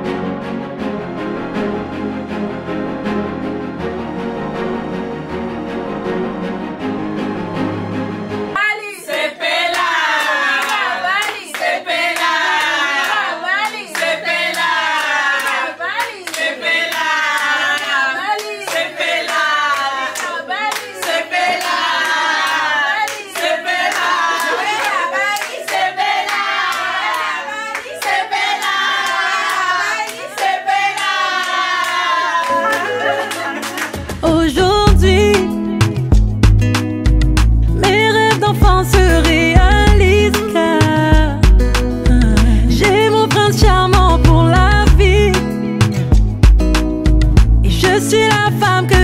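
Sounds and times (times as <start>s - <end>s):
women singing together: 8.6s - 35.4s, 37.8s - 45.3s, 47.7s - 49.0s
hand clapping: 9.1s - 34.2s, 35.3s - 42.0s, 42.8s - 44.5s, 45.4s - 49.0s
low bass line: 34.2s - 37.8s, 38.6s - 40.3s, 41.2s - 42.8s, 43.6s - 45.4s, 46.2s - 47.8s.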